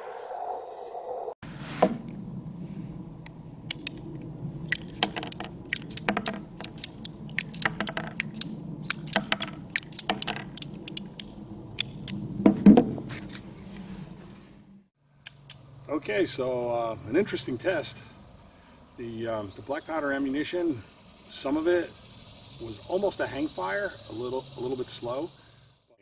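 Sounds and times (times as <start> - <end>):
high insect drone: 0.0 - 13.7, 15.0 - 26.0
revolver metal clicks and clinks: 4.7 - 12.2.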